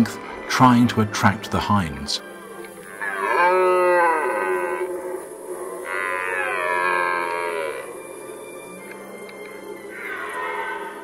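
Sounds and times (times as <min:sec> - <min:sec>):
deer stag roaring: 0:02.8 - 0:08.4, 0:09.8 - 0:11.0.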